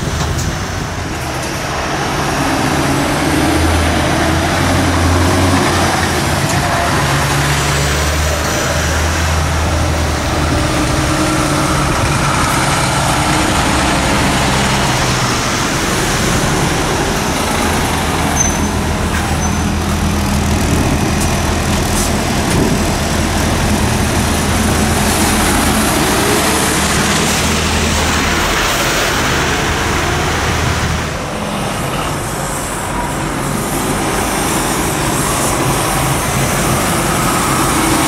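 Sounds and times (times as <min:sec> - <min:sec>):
lorry engines running: 0:00.0 - 0:38.0
tyre and traffic noise: 0:00.0 - 0:38.0
short high squeaks: 0:18.3 - 0:19.8.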